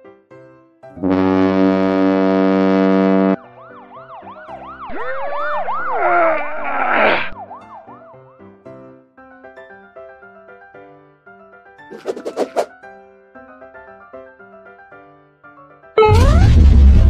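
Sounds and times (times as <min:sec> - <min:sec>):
buzzy horn blast: 0:01.0 - 0:03.4
police siren yelping: 0:04.0 - 0:08.0.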